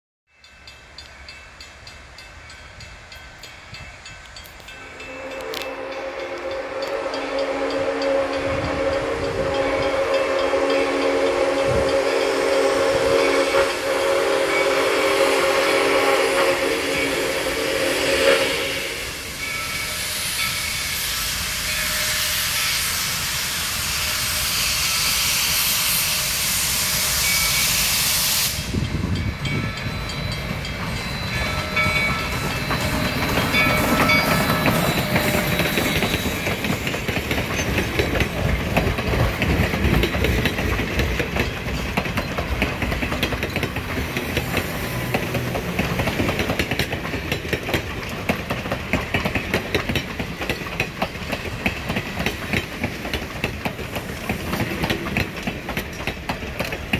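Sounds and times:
steam locomotive hissing: 0.4s - 56.9s
high wheel squeals: 13.3s - 37.8s
train wheels clattering over rails: 28.6s - 56.9s.

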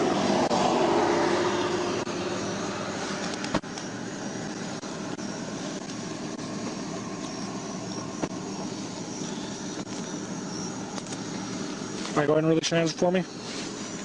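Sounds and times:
roadside traffic: 0.0s - 14.0s.

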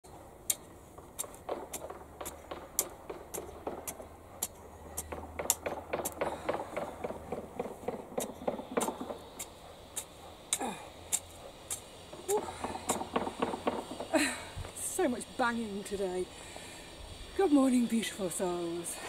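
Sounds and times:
metal rake scraping dry soil: 0.4s - 6.2s.

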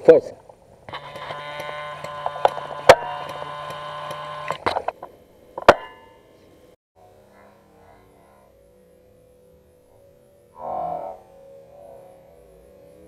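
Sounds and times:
steady hum: 0.0s - 13.0s
airsoft rifle shots: 0.9s - 4.9s.

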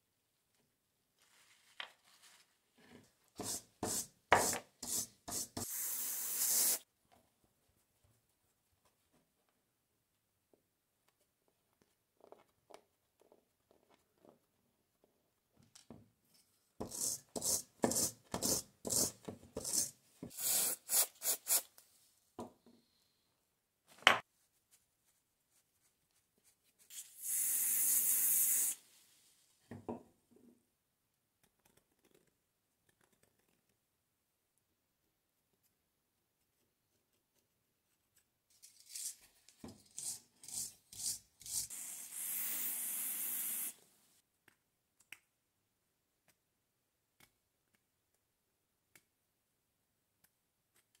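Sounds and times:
steady hiss: 5.6s - 6.8s, 41.8s - 44.0s.

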